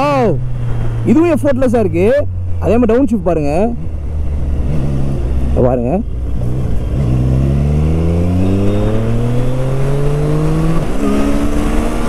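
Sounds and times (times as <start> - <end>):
motorcycle engine accelerating: 3.8 - 12.0.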